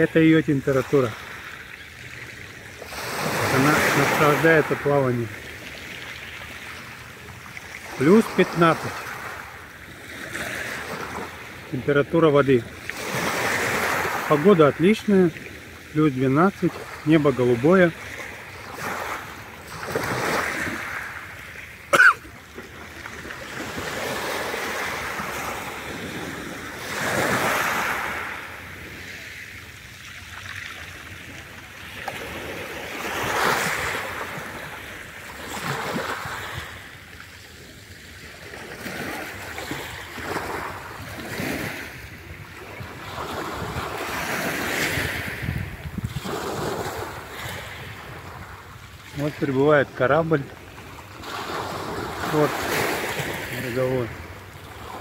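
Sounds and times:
small waves washing onto beach: 0.0 - 55.0
wind on microphone: 44.9 - 46.7.

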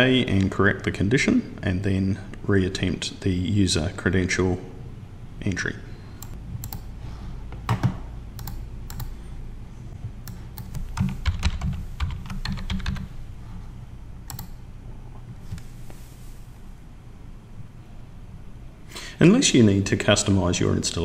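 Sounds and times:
computer keyboard typing: 6.2 - 6.9, 7.7 - 9.2, 10.2 - 13.1, 14.3 - 14.6.

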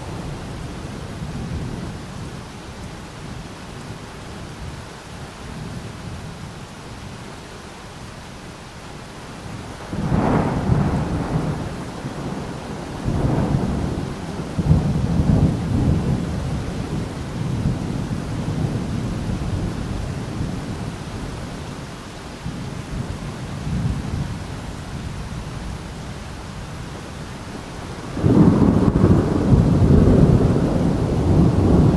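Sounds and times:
rain hiss: 0.0 - 31.9
rolling thunder rumbles: 9.5 - 21.4, 27.5 - 31.9
thunder crack: 28.1 - 31.9.

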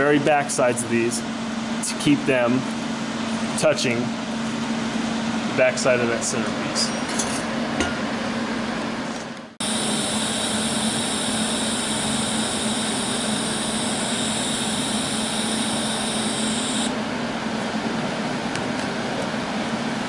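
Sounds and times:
welding torch hissing: 9.6 - 16.9.

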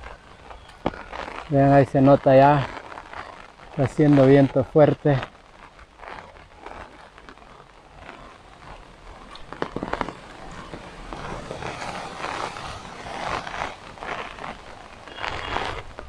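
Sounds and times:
leaves rustling: 0.0 - 16.0
rain falling: 0.0 - 16.0
storm wind gusting through trees: 0.0 - 16.0
wind buffeting microphone: 7.8 - 16.0.

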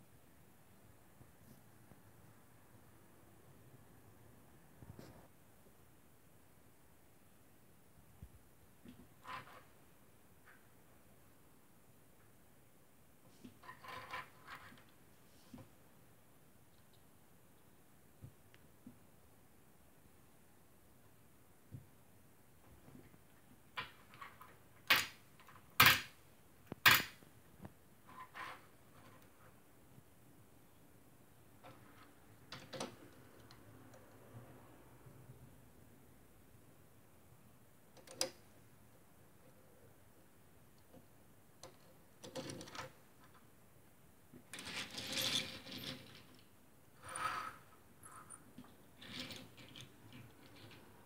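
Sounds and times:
toy car rolling on wooden table: 13.6 - 14.9, 44.5 - 51.0.

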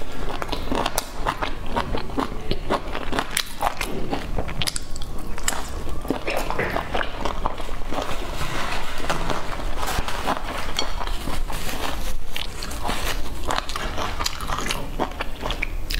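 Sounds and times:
person biting and chewing: 0.0 - 8.3, 9.2 - 15.9.

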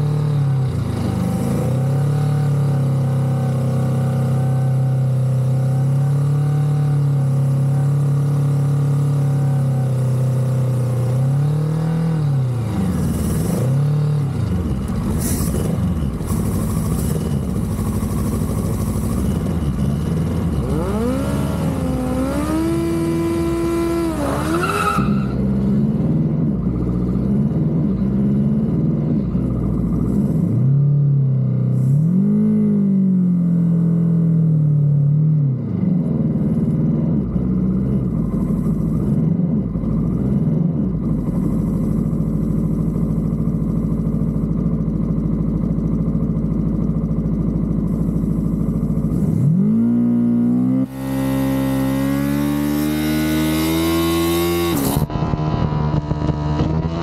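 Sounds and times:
race car engine revving: 11.0 - 28.8.

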